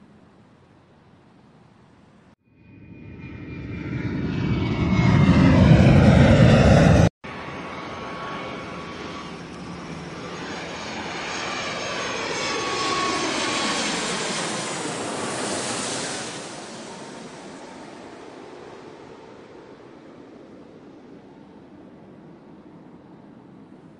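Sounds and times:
jet with thin steady whine: 0.0s - 23.9s
loud jet rushing: 2.8s - 9.2s.

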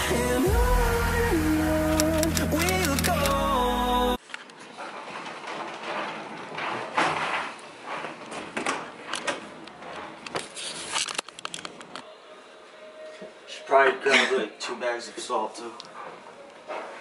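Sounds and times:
camera handling rustling: 10.3s - 12.0s.

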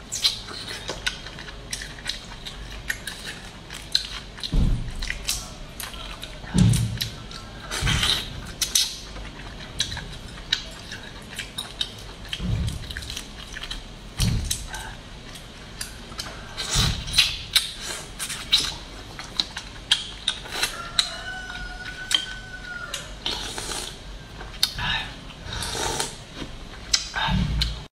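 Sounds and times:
wet chewing: 0.0s - 24.8s
soft low thuds: 4.5s - 5.2s.

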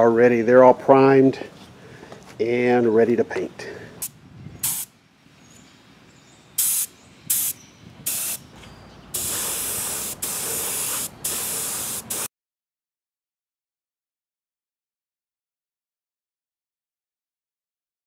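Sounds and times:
spray gun spraying bursts: 4.6s - 4.9s, 6.6s - 8.4s, 9.2s - 12.3s.

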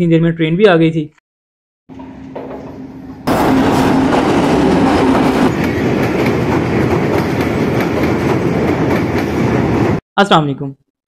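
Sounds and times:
approaching train hum: 1.9s - 10.0s
train rattling over bridge: 2.6s - 10.0s.

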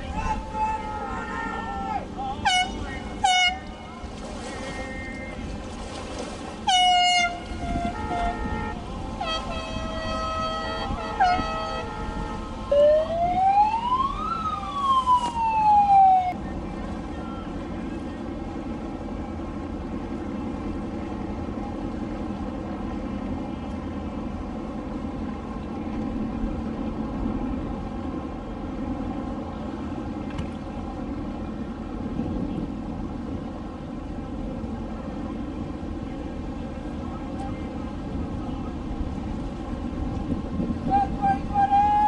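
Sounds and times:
boat motors droning: 0.0s - 42.0s
horns sounding: 0.1s - 5.5s, 6.6s - 13.1s, 40.8s - 42.0s
siren rising and falling: 12.7s - 16.4s.

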